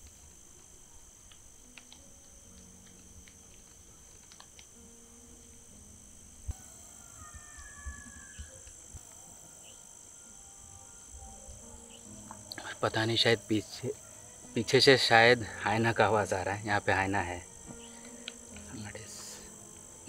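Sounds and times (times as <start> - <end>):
crickets chirping: 0.0 - 20.0
distant wavering animal call: 6.5 - 18.6.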